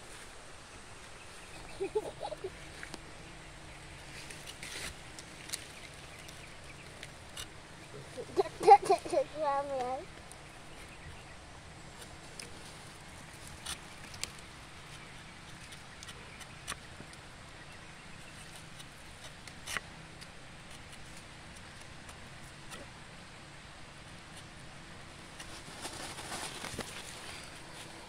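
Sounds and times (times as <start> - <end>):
knife scraping tree bark: 4.0 - 9.0, 13.4 - 16.9, 18.2 - 23.0.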